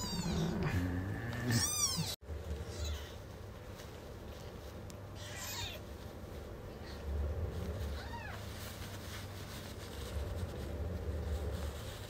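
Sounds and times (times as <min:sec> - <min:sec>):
kitten mewing: 0:00.0 - 0:03.2
low steady rumble: 0:00.0 - 0:12.0.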